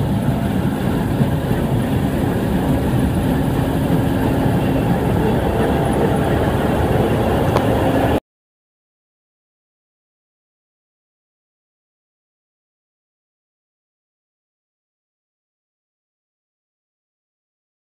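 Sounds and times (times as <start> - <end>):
combine harvester engine drone: 0.0 - 8.2.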